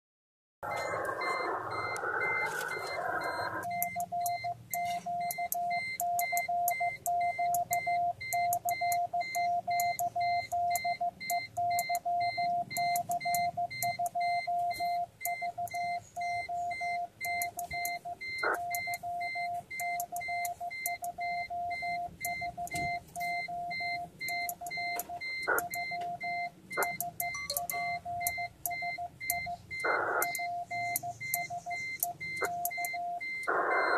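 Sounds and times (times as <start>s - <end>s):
morse code beeps: 0.6s - 33.9s
receiver hiss: 0.7s - 3.6s.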